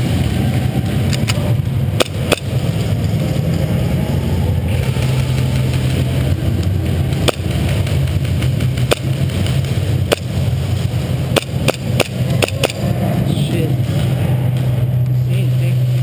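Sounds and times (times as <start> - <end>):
steady low drone: 0.0 - 16.0
airsoft gun shots: 2.0 - 2.6, 7.2 - 10.4, 11.3 - 12.8.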